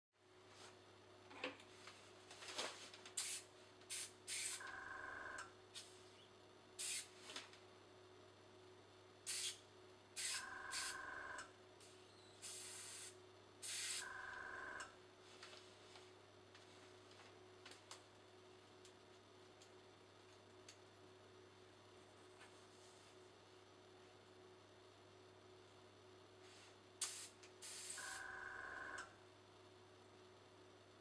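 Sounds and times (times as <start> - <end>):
airbrush hissing bursts: 3.2 - 4.6, 6.8 - 7.1, 9.3 - 9.6, 10.2 - 11.0, 12.4 - 14.0, 27.0 - 28.2.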